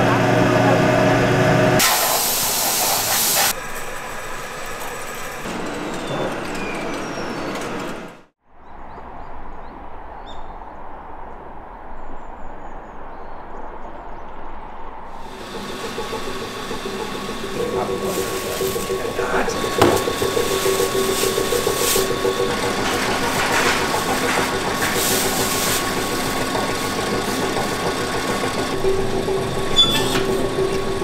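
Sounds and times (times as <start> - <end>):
factory machine noise: 0.0 - 8.3, 15.2 - 31.0
loud hiss: 1.8 - 5.2, 15.2 - 28.6.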